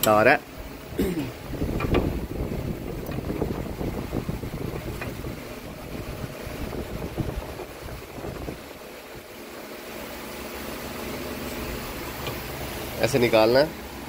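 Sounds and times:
wind rumbling on microphone: 1.4 - 9.3.

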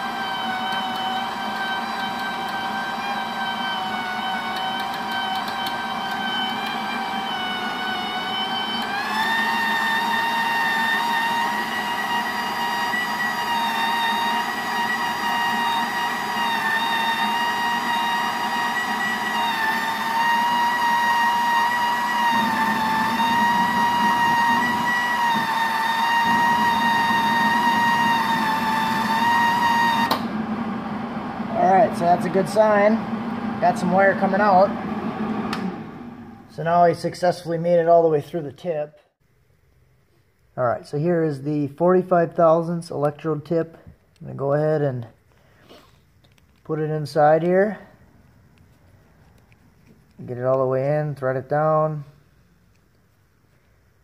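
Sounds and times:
wire-feed motor whining: 0.0 - 36.7.

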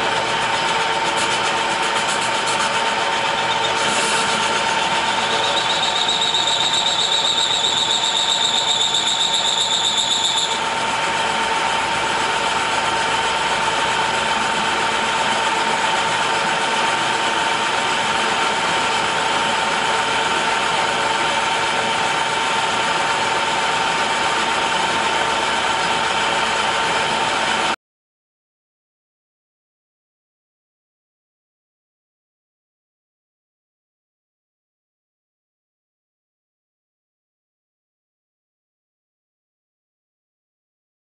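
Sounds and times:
lathe whining: 0.0 - 27.8
cutting tool squealing: 0.4 - 10.8.

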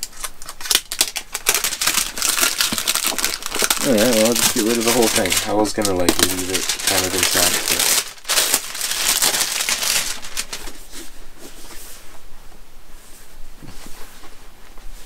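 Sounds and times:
plastic wrap crinkling: 0.0 - 11.7.

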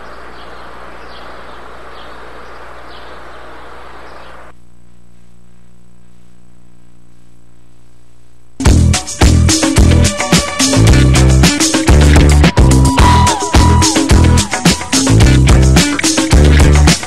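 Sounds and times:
steady hiss: 0.0 - 8.4
low electrical hum: 0.0 - 8.6.

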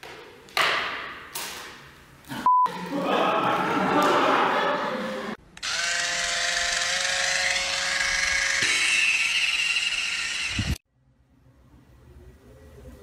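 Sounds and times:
electric foot file whine: 5.6 - 10.8.

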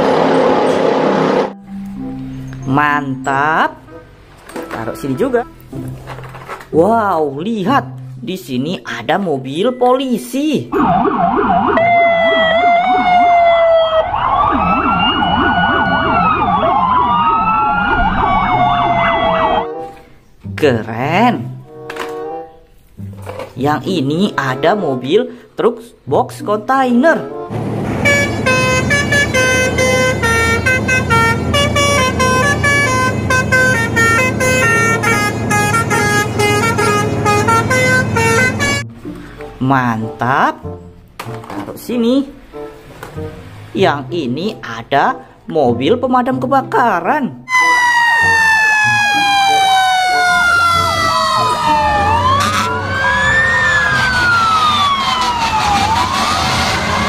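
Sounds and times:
engine drone: 0.0 - 1.7, 27.5 - 38.8, 47.6 - 57.0
musical air horn tune: 27.5 - 39.0, 47.5 - 57.0.

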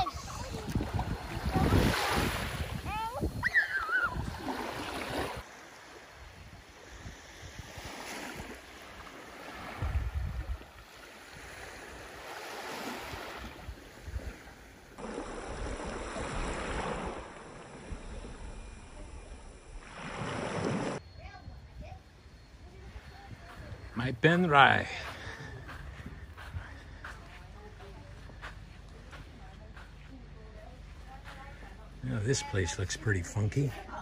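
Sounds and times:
wind gust on microphone: 0.0 - 12.2
waves washing onto beach: 0.0 - 21.0.

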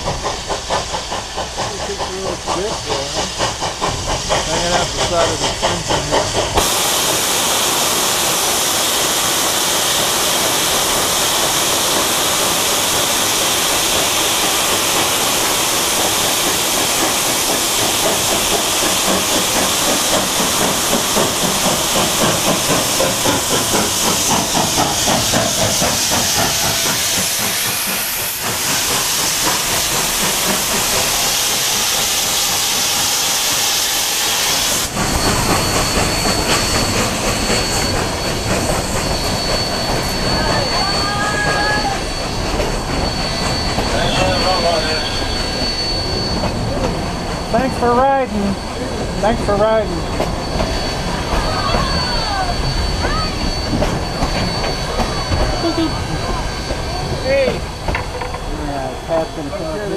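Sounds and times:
steam hissing from locomotive: 0.0 - 59.9
steam train rhythmic chuffing: 0.0 - 59.9
train cars rumbling past: 0.0 - 59.9
high wheel squeal: 4.0 - 59.9.

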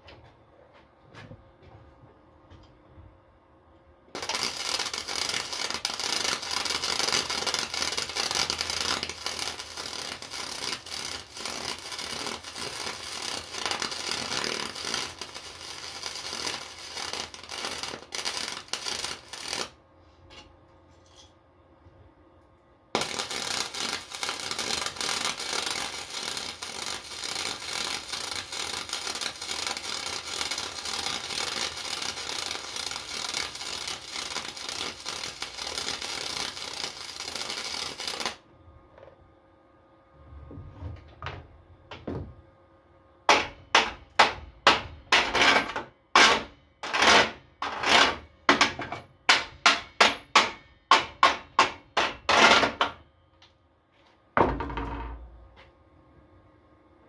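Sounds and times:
welder arc crackling: 4.2 - 19.8, 23.0 - 38.4.

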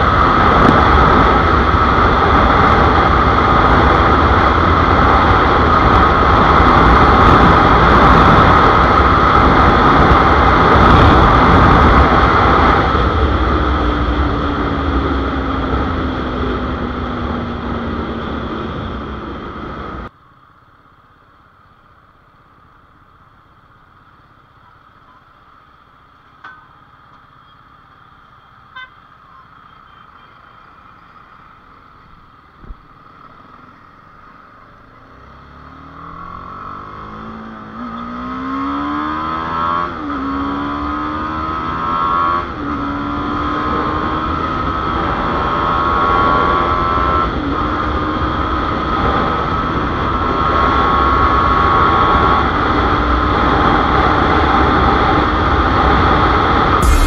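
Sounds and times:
wind rush: 0.0 - 20.1, 54.8 - 57.0
traffic sounds: 0.0 - 57.0
car horn beep: 28.7 - 30.6
motorcycle engine: 56.8 - 57.0.

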